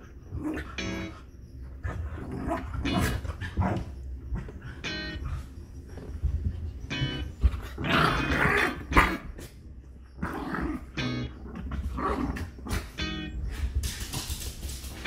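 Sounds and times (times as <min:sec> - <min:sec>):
dogs growling and snarling: 0:01.8 - 0:04.9, 0:07.6 - 0:09.6, 0:10.2 - 0:13.0.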